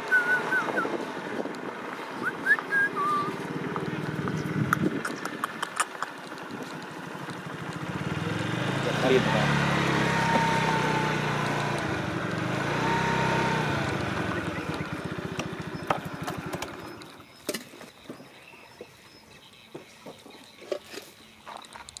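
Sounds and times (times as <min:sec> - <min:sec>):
vehicle engine running: 0:00.0 - 0:17.3.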